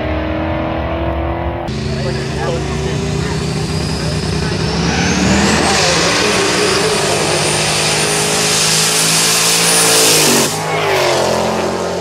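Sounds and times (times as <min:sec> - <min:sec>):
car engine revving: 0:00.0 - 0:12.0.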